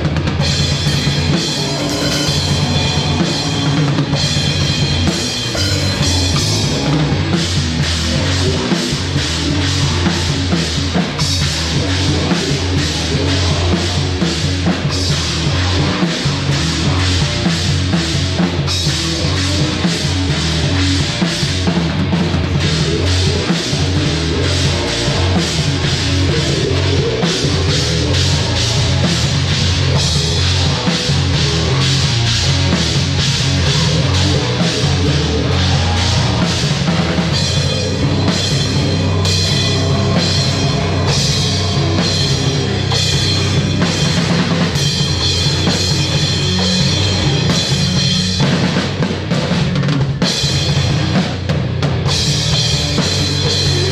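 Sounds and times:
bass guitar: 0.0s - 53.9s
drum kit pounding: 0.0s - 53.9s
heavy rock band playing live: 0.0s - 53.9s
cymbals ringing: 0.5s - 9.1s.

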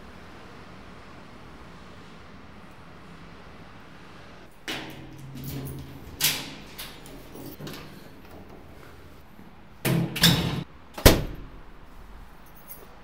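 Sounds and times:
metal door banging shut: 4.6s - 9.2s, 9.8s - 11.9s
metal-mesh door rattling: 4.6s - 12.8s.

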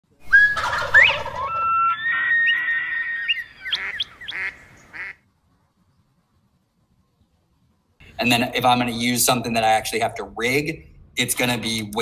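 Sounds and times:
high whistled animal calls: 0.2s - 4.8s.

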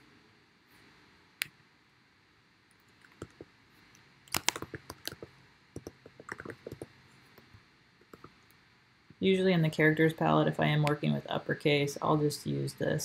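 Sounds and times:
computer keyboard typing: 2.8s - 3.5s, 4.3s - 6.9s.

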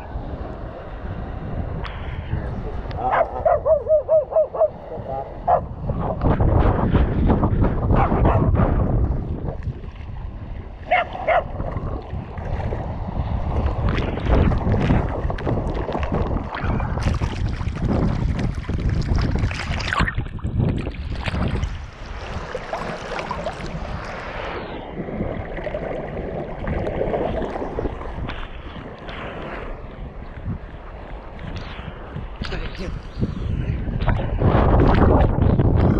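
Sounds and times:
wind buffeting microphone: 0.0s - 35.9s.

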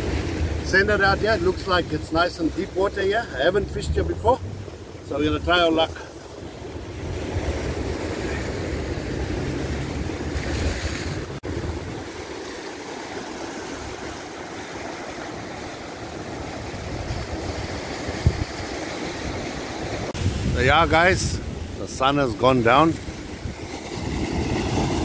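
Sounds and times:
surf breaking over rocks: 0.0s - 25.0s
wind rumbling on microphone: 16.0s - 25.0s.

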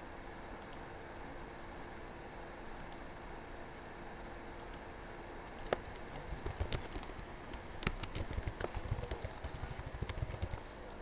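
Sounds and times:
keyboard typing clicks: 5.5s - 11.0s.

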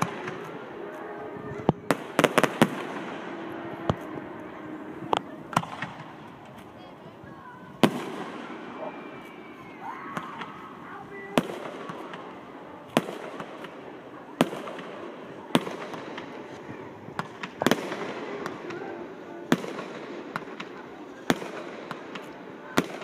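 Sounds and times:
fireworks bangs: 0.0s - 23.0s.

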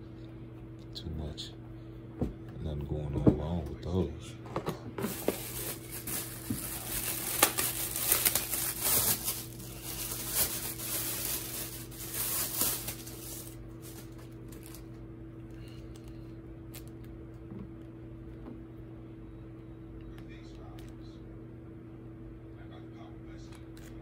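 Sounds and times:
plastic bag crinkling: 5.0s - 17.2s.

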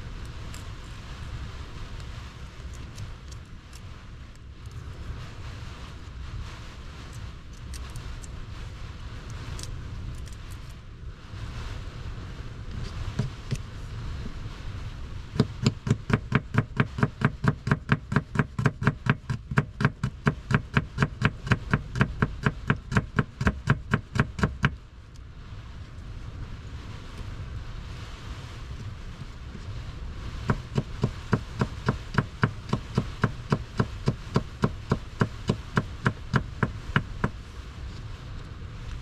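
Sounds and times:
low rumble: 0.0s - 16.8s, 21.3s - 39.0s.

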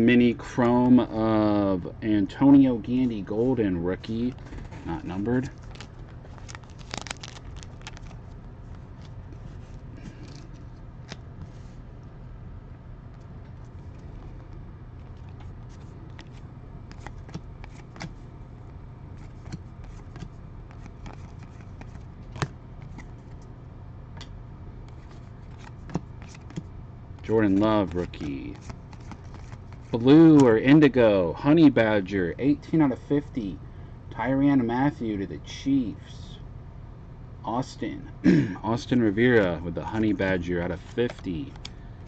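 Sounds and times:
steady low hum: 0.0s - 42.0s
trading cards being flipped: 4.2s - 11.6s, 13.5s - 18.2s, 19.2s - 23.5s, 24.9s - 30.5s, 39.3s - 41.7s.

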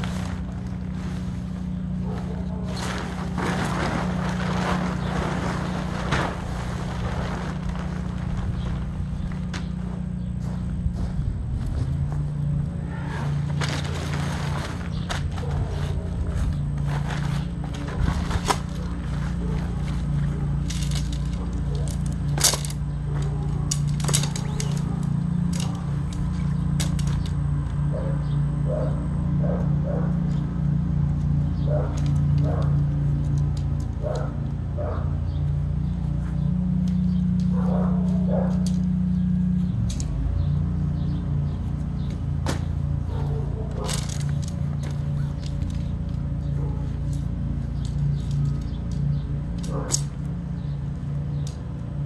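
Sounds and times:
tent fabric rustling: 0.0s - 12.3s, 13.0s - 22.4s
steady low hum: 0.0s - 52.0s
fabric swish: 2.7s - 8.7s
tent poles clicking together: 16.8s - 27.4s, 31.2s - 34.4s, 36.8s - 40.3s, 43.6s - 52.0s.

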